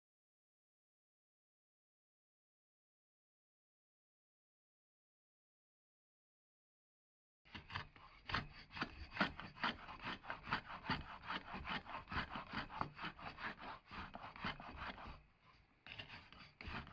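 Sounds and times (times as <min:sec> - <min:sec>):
router plane scraping wood: 0:07.5 - 0:15.3, 0:15.9 - 0:16.9.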